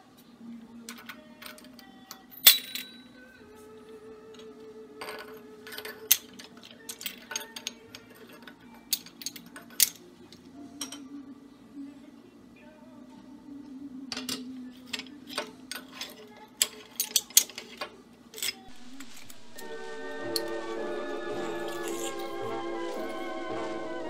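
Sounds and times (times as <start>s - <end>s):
soft background music: 0.0s - 24.0s
glass and metal parts clinking: 0.9s - 3.2s, 4.3s - 11.1s, 14.1s - 19.4s, 21.4s - 23.2s.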